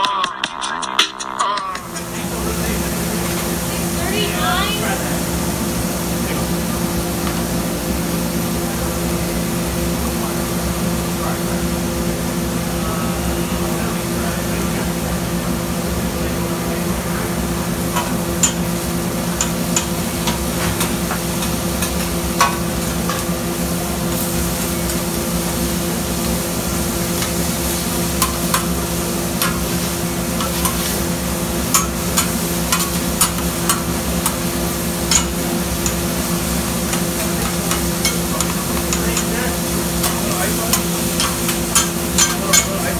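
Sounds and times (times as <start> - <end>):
steady hum: 0.0 - 42.9
food sizzling on griddle: 1.8 - 14.6, 15.8 - 42.9.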